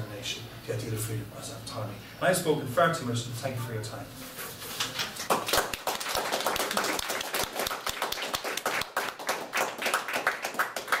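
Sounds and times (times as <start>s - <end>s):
small group applauding: 4.8s - 11.0s.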